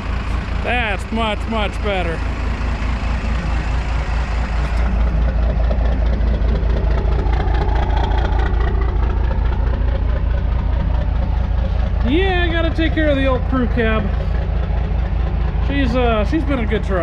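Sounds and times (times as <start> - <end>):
diesel truck engine idling: 0.0 - 17.0.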